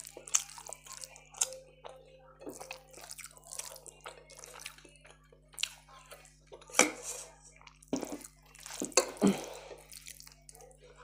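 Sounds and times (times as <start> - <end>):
chewing and mouth smacks: 0.0 - 1.6, 7.6 - 10.7.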